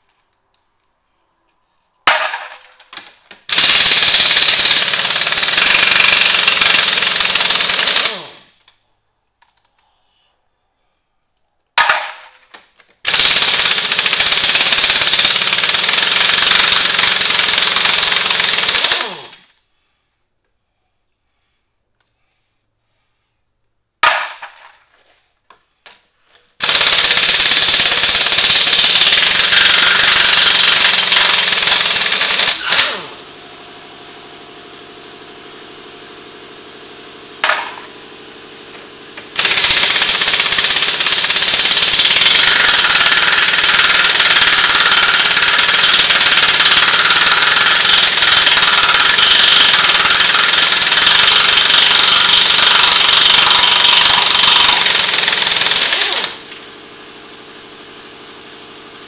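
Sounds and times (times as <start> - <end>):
impact wrench hammering: 2.1 - 8.5, 11.8 - 19.5, 24.0 - 24.8, 26.6 - 33.2, 37.4 - 38.0, 38.7 - 56.6.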